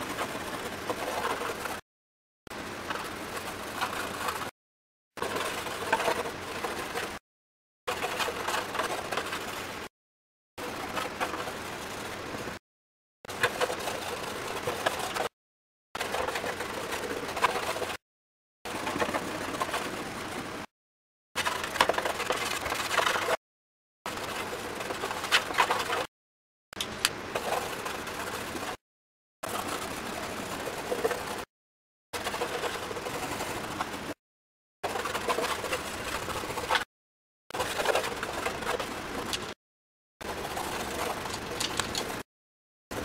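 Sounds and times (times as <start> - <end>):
pencil scratching on wood: 0.0 - 1.8, 34.9 - 36.9.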